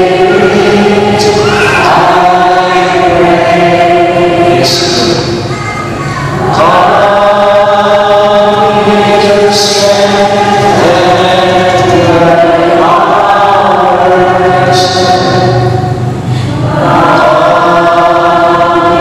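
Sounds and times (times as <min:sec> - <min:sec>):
voices singing a chant: 0:00.0 - 0:19.0.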